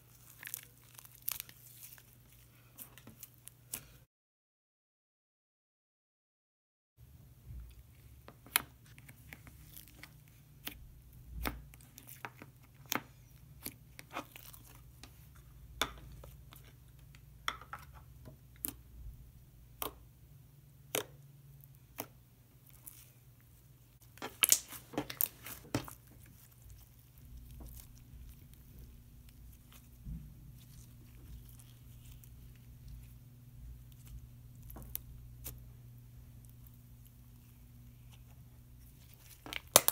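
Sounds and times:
low steady hum: 7.0s - 39.9s
slime squishing and popping: 24.1s - 28.7s, 39.0s - 39.9s.

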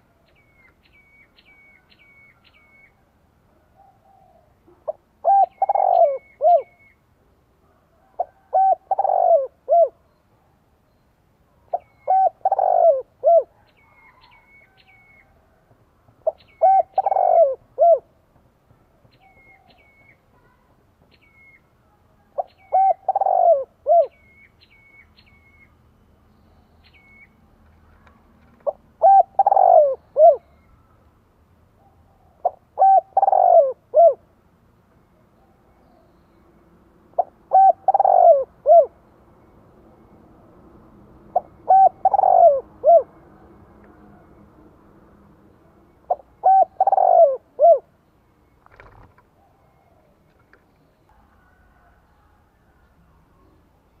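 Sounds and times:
dove cooing: 3.8s - 7.0s, 8.0s - 10.0s, 11.7s - 15.2s, 16.2s - 18.2s, 22.3s - 24.2s, 28.6s - 30.6s, 31.8s - 34.3s, 37.1s - 39.0s, 41.3s - 43.2s, 46.1s - 47.9s.

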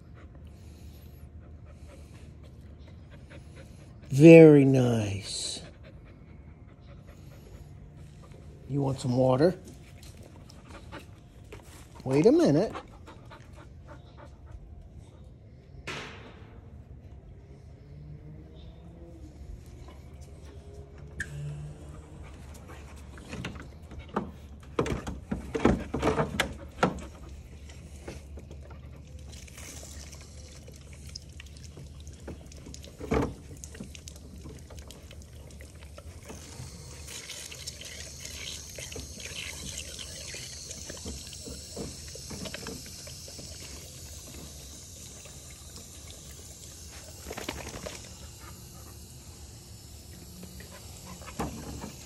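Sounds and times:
thump: 15.9s - 16.6s
dog lapping water: 25.1s - 52.0s
hose spraying water: 29.3s - 52.0s.

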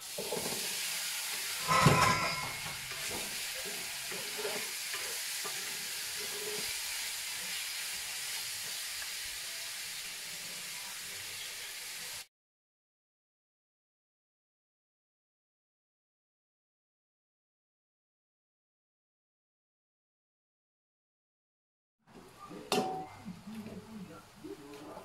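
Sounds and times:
burst of sizzle and clatter: 0.0s - 12.3s
meat sizzling in a wok: 0.0s - 12.3s.

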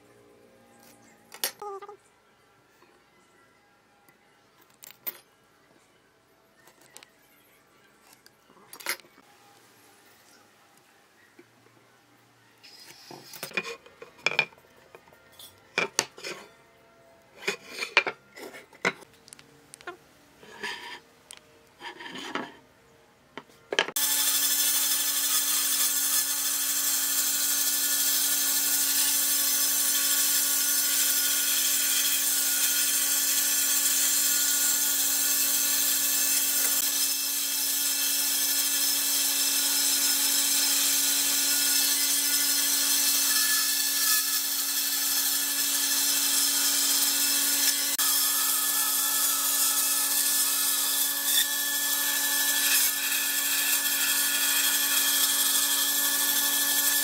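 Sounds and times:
bandsaw cutting wood: 24.0s - 57.0s.

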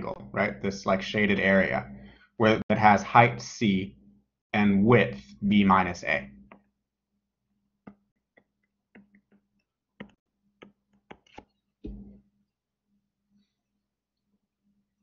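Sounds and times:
faint steady hum: 0.0s - 6.8s
stylus tapping on tablet screen: 7.8s - 12.2s.

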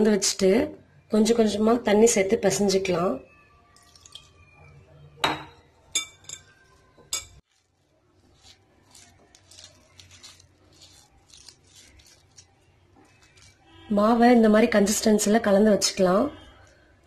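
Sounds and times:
dough squishing and scraping: 6.4s - 15.0s.

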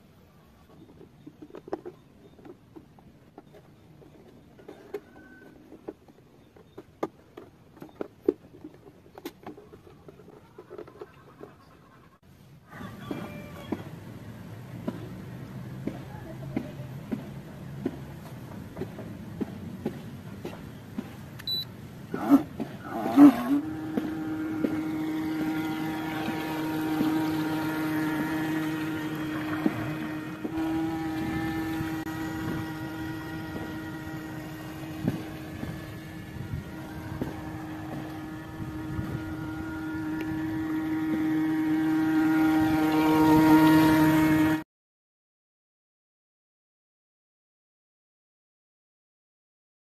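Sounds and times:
model boat motor humming: 0.0s - 44.6s
propeller wash churning: 13.0s - 44.6s.

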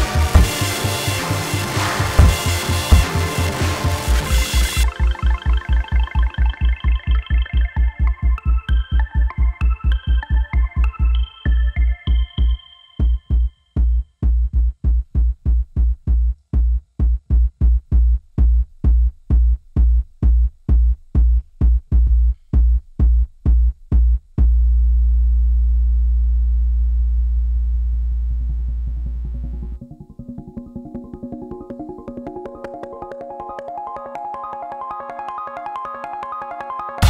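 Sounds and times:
held deep synthesizer bass note: 0.0s - 7.8s, 24.4s - 29.9s
quick synthesizer pattern: 0.0s - 14.0s, 29.3s - 37.0s
drum-machine bass beat: 0.0s - 25.5s, 28.1s - 33.6s.

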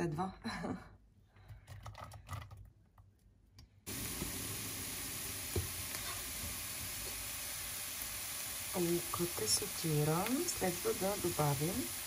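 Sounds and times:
onion sizzling in a pan: 3.9s - 12.0s.

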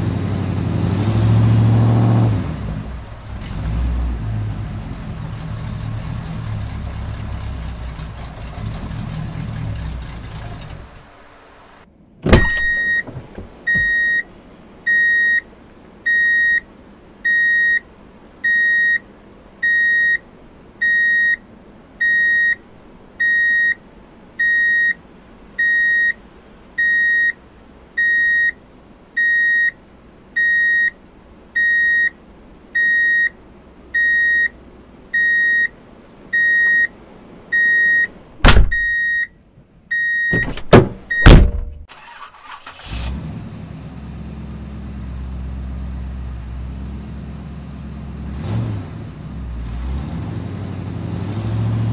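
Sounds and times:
high beep: 12.4s - 13.1s, 13.7s - 14.2s, 22.0s - 22.6s, 28.0s - 28.5s, 34.0s - 34.5s, 35.2s - 35.7s, 36.4s - 36.9s, 37.6s - 39.3s.

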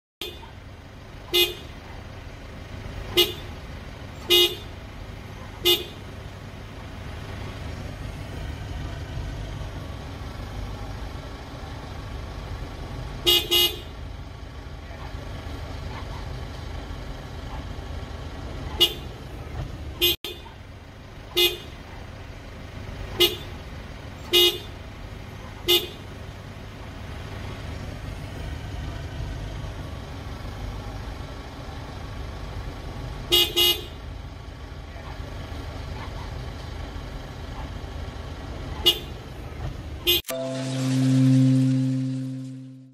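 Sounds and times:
car horn beeps: 1.3s - 1.7s, 3.1s - 3.5s, 4.2s - 4.8s, 5.6s - 6.0s, 13.2s - 13.9s, 18.8s - 19.1s, 20.0s - 20.4s, 21.3s - 21.8s, 23.2s - 23.5s, 24.3s - 24.8s, 25.7s - 26.0s, 33.3s - 34.0s, 38.8s - 39.2s, 40.0s - 42.9s.

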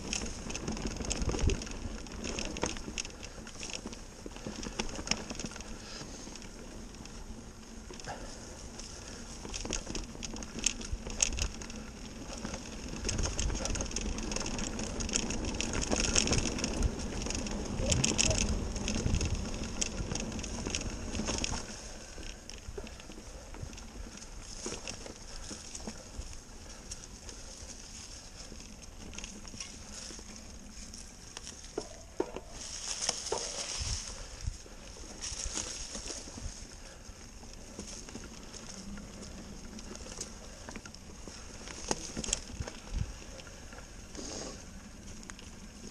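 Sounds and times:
bike tyres crunching dry leaves: 0.0s - 45.9s.

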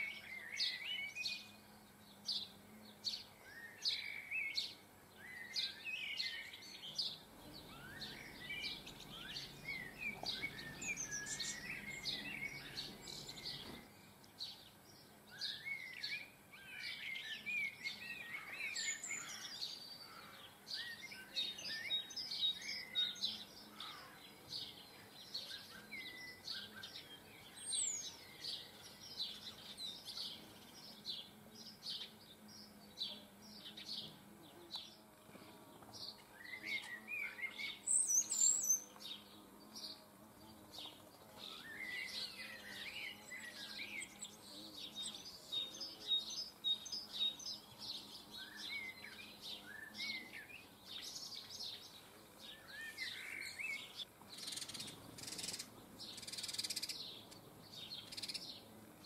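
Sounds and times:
small birds chirping: 0.0s - 59.0s.

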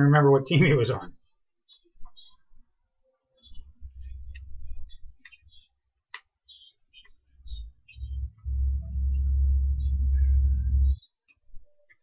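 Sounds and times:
low rumble: 8.0s - 11.0s.

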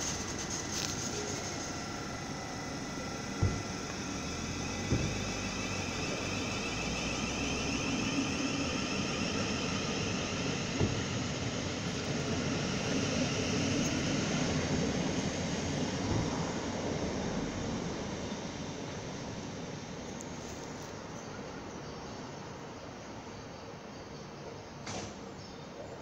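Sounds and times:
electric train rumbling: 0.0s - 24.6s
dull knocks: 3.4s - 5.4s, 10.8s - 11.1s.

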